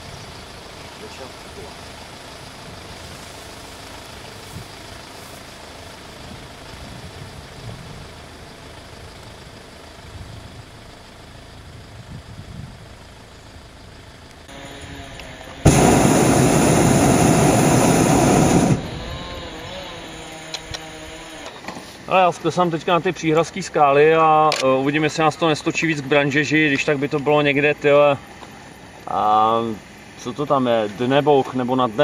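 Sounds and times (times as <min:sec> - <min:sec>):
propane burner roaring: 0:00.0 - 0:24.3
faint outdoor background: 0:00.0 - 0:32.0.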